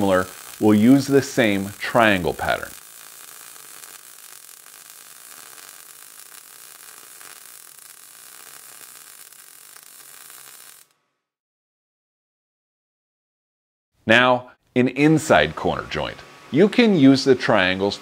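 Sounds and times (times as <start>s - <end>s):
welding arc hissing: 0.0s - 11.0s.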